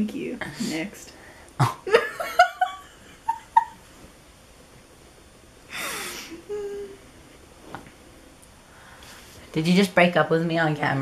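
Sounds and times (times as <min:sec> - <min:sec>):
person laughing: 0:01.6 - 0:03.8, 0:05.7 - 0:07.0.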